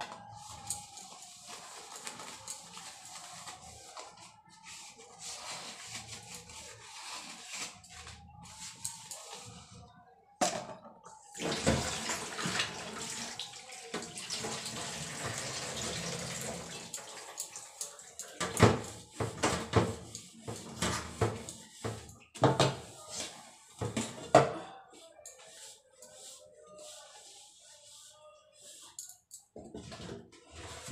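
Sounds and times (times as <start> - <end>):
tap water running over dishes: 11.4 - 22.8.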